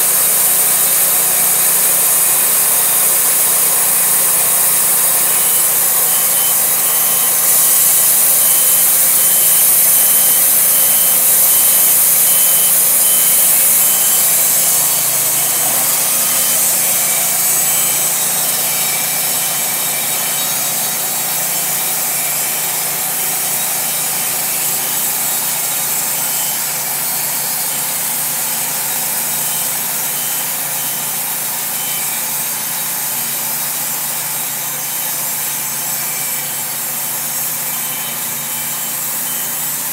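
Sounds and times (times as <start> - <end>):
sawmill engine humming: 0.0 - 28.2
band blade sawing log: 0.0 - 30.9.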